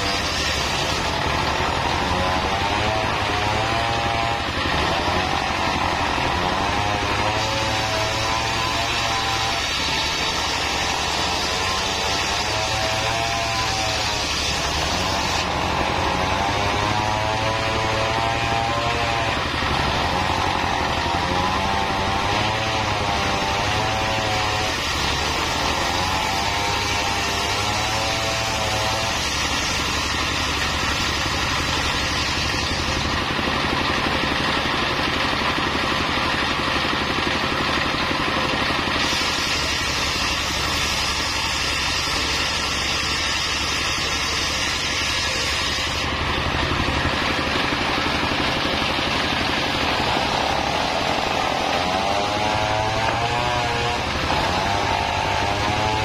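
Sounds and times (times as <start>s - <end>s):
circular saw cutting wood: 0.0s - 56.0s
saw blade whine: 0.0s - 56.0s
diesel engine running: 45.4s - 52.0s.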